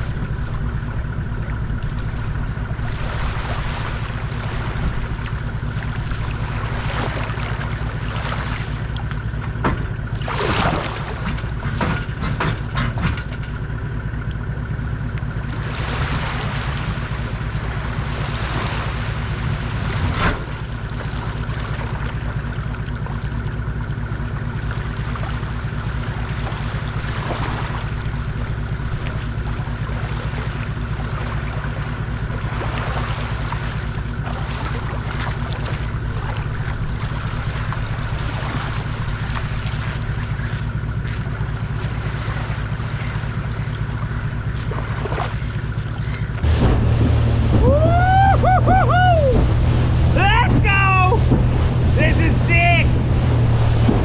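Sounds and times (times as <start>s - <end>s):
small waves washing on beach: 0.0s - 11.8s, 15.4s - 47.8s
rushing water noise: 0.0s - 12.3s, 15.4s - 54.0s
boat knocking off trailer: 0.0s - 54.0s
vehicle engine idling: 0.0s - 54.0s
clicks and knocks at trailer: 9.1s - 10.1s, 11.1s - 13.8s.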